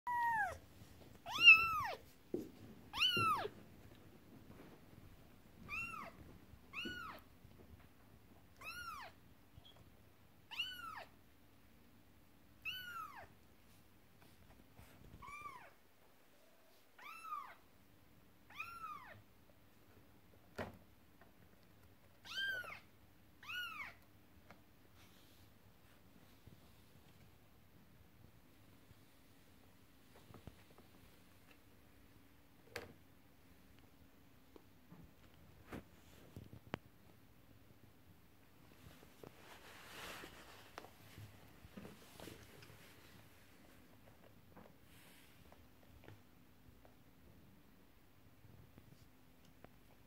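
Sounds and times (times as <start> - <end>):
kitten meowing: 0.1 - 0.6, 1.2 - 2.0, 2.9 - 3.5, 5.7 - 7.2, 8.6 - 9.2, 10.5 - 11.1, 12.6 - 13.3, 18.5 - 19.2.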